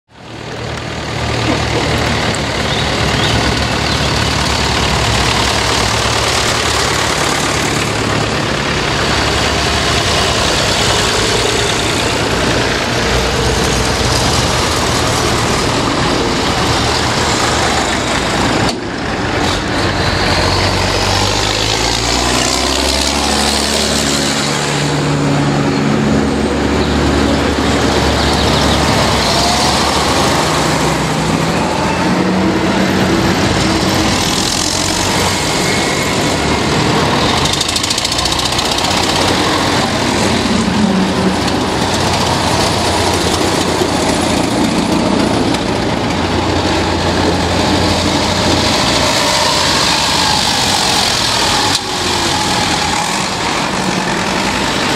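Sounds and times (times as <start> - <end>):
tractor engines passing: 0.1 - 54.9.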